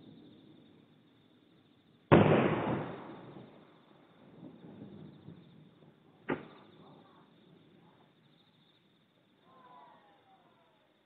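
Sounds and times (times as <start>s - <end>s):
distant firework bangs: 2.1s - 7.3s.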